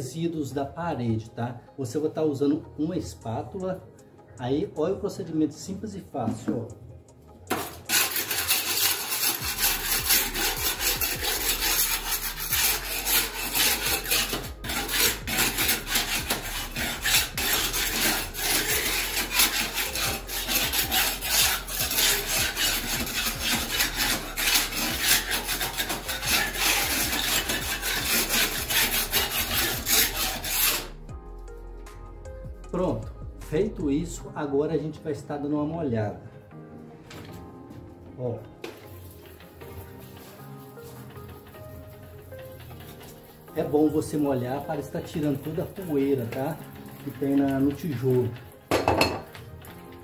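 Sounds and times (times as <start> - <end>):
putty knife scraping brick: 7.5 - 31.0.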